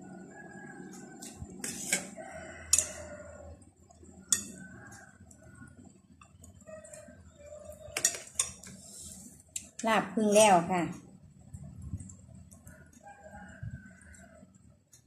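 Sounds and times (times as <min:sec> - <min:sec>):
rooster crowing: 0:00.0 - 0:01.3, 0:02.0 - 0:03.6, 0:04.4 - 0:05.8, 0:12.7 - 0:14.5
metal spoon clinking on plate: 0:02.7 - 0:03.0, 0:04.3 - 0:04.6, 0:07.9 - 0:08.6.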